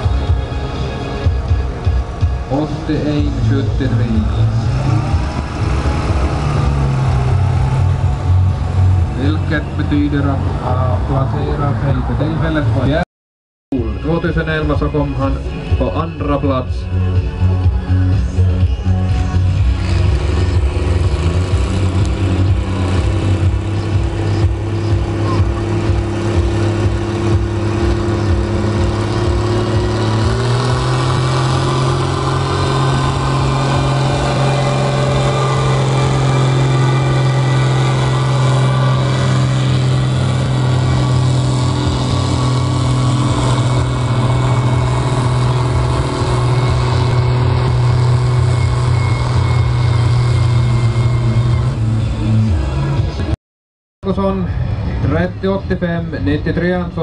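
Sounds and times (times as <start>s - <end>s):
tractor diesel engine under load: 0.0s - 13.0s, 14.0s - 53.4s.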